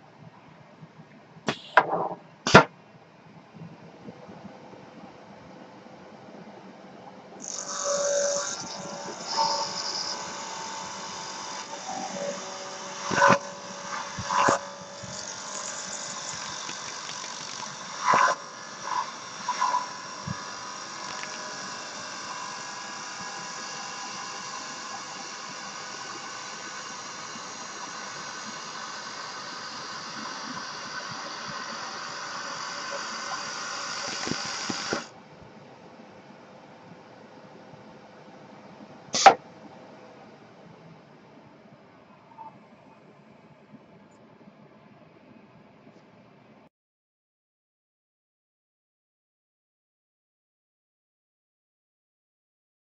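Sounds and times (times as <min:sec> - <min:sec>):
lathe blade cutting wood: 0:07.4 - 0:35.1.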